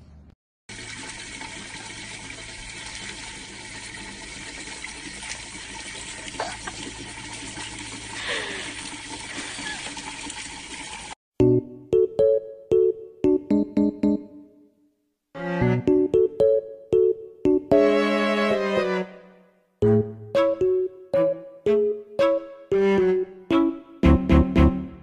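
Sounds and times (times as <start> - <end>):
water running from tap splashing: 0.7 - 11.2.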